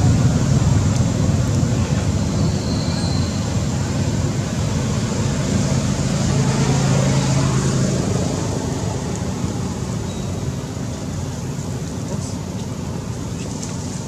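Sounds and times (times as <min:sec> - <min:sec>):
low motor hum and rumble: 0:00.0 - 0:14.0.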